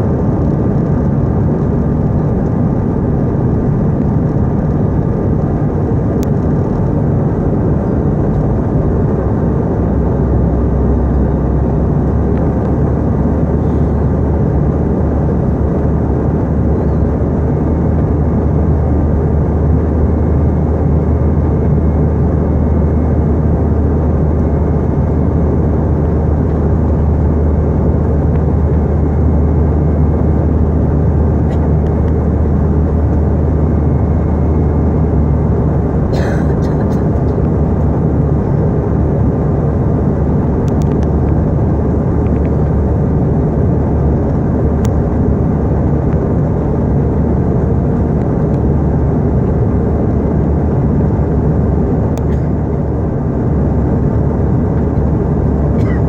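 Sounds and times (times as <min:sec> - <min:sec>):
jet cabin engine noise: 0:00.0 - 0:56.0
steady low hum: 0:00.0 - 0:56.0.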